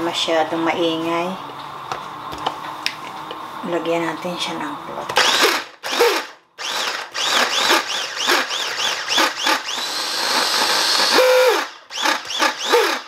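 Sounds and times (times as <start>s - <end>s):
electric chopper motor whine: 5.2s - 13.0s.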